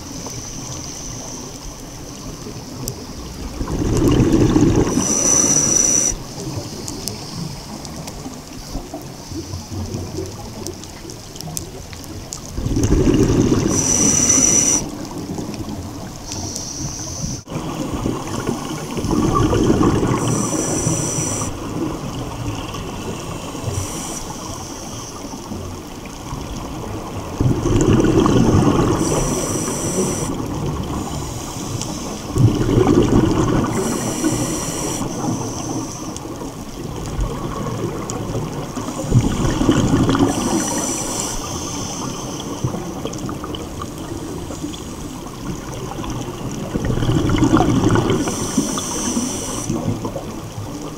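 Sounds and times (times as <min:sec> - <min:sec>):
exhaled bubbles rushing: 0:02.5 - 0:06.6, 0:12.5 - 0:16.2, 0:17.4 - 0:24.2, 0:25.4 - 0:35.6, 0:36.2 - 0:50.9
diver breathing through regulator: 0:04.5 - 0:07.5, 0:13.0 - 0:14.9, 0:16.3 - 0:17.5, 0:19.8 - 0:21.8, 0:23.1 - 0:25.3, 0:28.7 - 0:32.4, 0:33.6 - 0:36.2, 0:38.8 - 0:43.0, 0:47.6 - 0:50.0.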